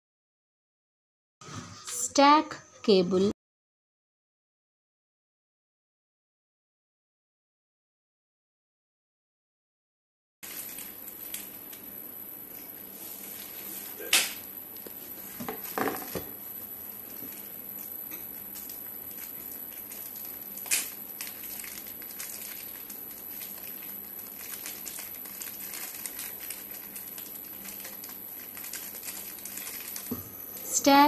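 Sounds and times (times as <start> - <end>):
plastic packaging crinkling: 10.4 - 11.9, 12.6 - 16.1, 17.1 - 30.2.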